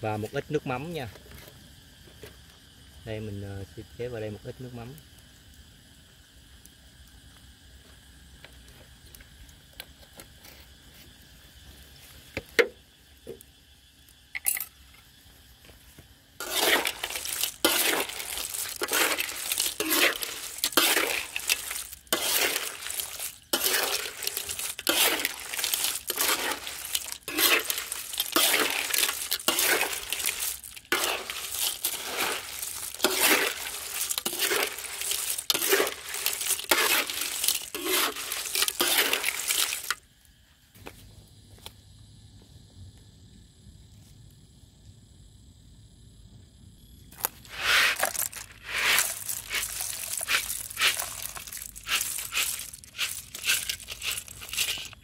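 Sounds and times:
clam shells clattering: 16.4s - 40.0s, 47.5s - 55.0s
spatula scraping a wok: 16.4s - 40.0s, 47.4s - 55.0s.

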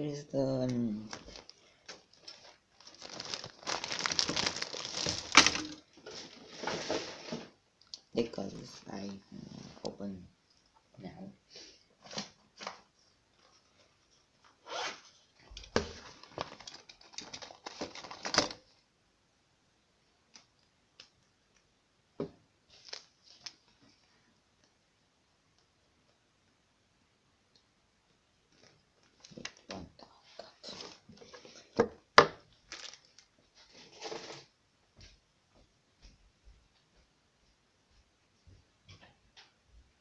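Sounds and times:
rustling and crinkling: 0.6s - 7.6s, 12.0s - 18.8s, 22.6s - 24.7s, 28.4s - 31.8s, 32.4s - 39.6s
packaging rustling: 0.9s - 7.4s, 15.8s - 18.7s, 22.7s - 23.7s, 32.5s - 34.5s
packaging crackling and snapping: 1.0s - 6.0s, 16.1s - 18.6s, 32.7s - 33.3s.

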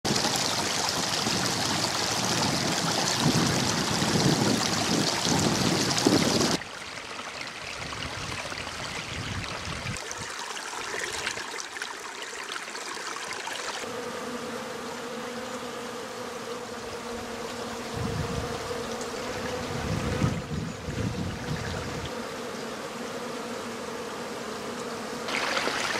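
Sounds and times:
stream water running: 0.0s - 14.0s, 18.5s - 22.2s, 25.2s - 25.9s
bee buzzing: 13.1s - 25.9s.

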